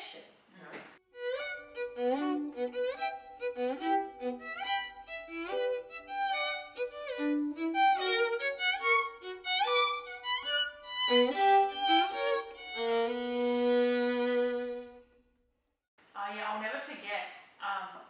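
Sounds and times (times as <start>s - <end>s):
two violins playing: 1.1s - 15.1s.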